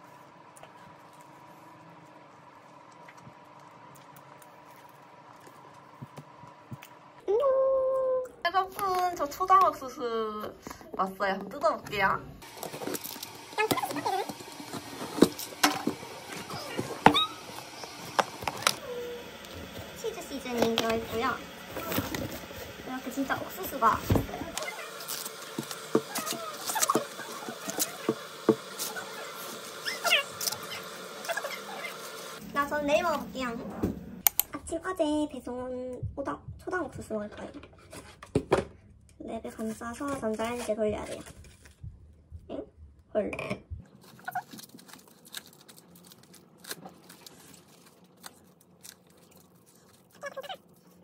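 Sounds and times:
plastic cling wrap crinkling: 0:44.0 - 0:51.0
corn husk tearing: 0:44.2 - 0:51.0.

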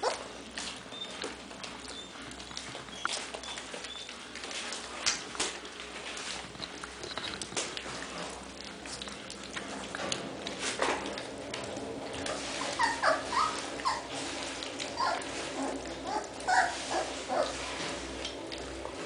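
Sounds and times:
puppies squeaking and whimpering: 0:00.0 - 0:04.7, 0:12.3 - 0:17.8
puppies lapping from metal tray: 0:00.0 - 0:19.0.

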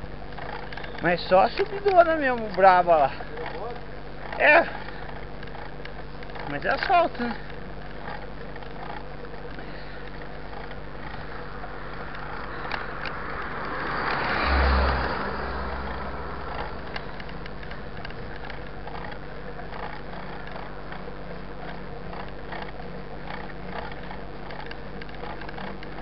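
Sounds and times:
bike drivetrain ticking: 0:00.0 - 0:26.0
bike tires on pavement: 0:00.0 - 0:26.0
car passing: 0:10.5 - 0:19.1.

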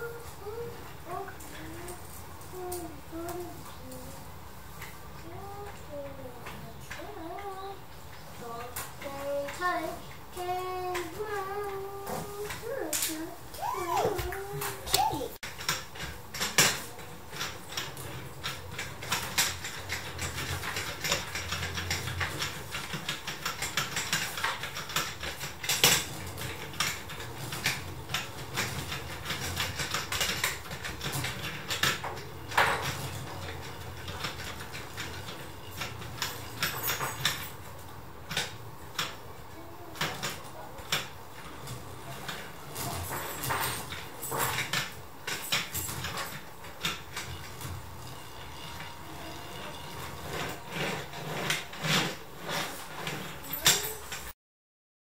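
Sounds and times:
plastic gears clicking and rattling: 0:14.0 - 0:39.2, 0:39.9 - 0:54.3.

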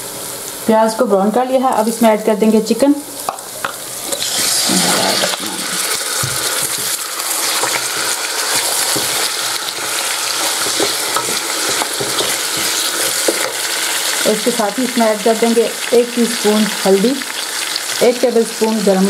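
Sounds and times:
chicken sizzling in hot oil: 0:00.0 - 0:19.0
wooden spoon scraping pot: 0:04.0 - 0:14.2.

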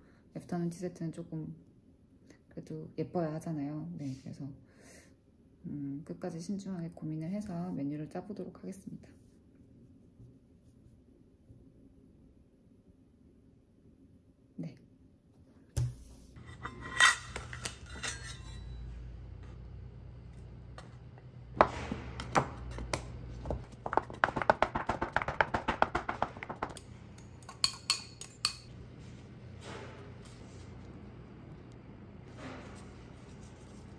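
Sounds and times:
steady low hum: 0:15.9 - 0:33.9
kitchen utensils clinking: 0:16.4 - 0:18.9, 0:26.4 - 0:28.7
scraper tapping on wooden board: 0:23.8 - 0:26.8.

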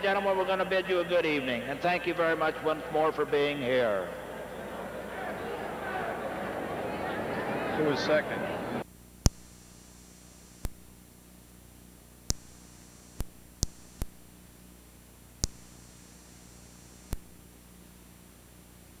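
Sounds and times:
faint electrical hum and hiss: 0:00.0 - 0:19.0
short sharp clicks: 0:15.4 - 0:15.7.

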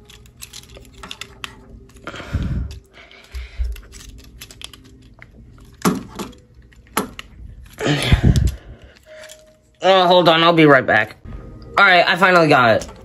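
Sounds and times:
plastic toy parts clicking: 0:00.0 - 0:02.0, 0:02.7 - 0:09.6.

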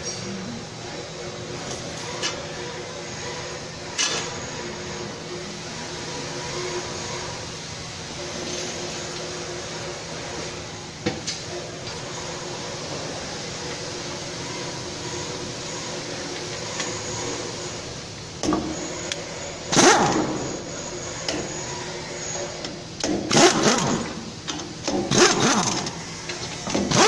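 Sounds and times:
steady background hum: 0:00.0 - 0:27.0
pneumatic wrench bursts: 0:18.4 - 0:27.0.

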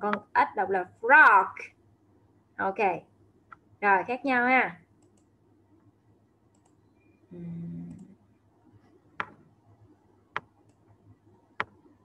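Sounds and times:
computer mouse clicks: 0:05.0 - 0:05.3, 0:06.5 - 0:06.9, 0:07.8 - 0:08.2, 0:09.2 - 0:09.5, 0:10.3 - 0:12.0.

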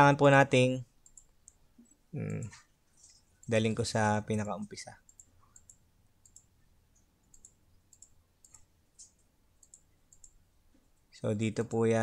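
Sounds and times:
computer mouse clicks: 0:01.0 - 0:03.6, 0:05.0 - 0:10.9.

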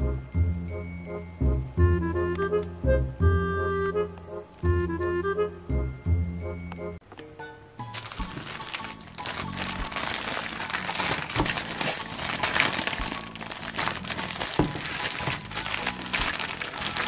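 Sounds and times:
background music: 0:00.0 - 0:17.0
plastic bag crinkling: 0:07.8 - 0:17.0.

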